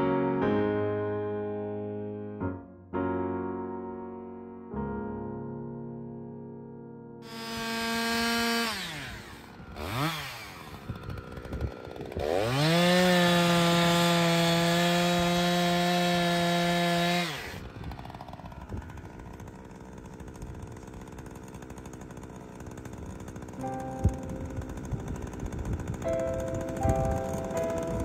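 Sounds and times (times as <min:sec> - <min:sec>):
chainsaw engine revving: 0:07.2 - 0:28.0.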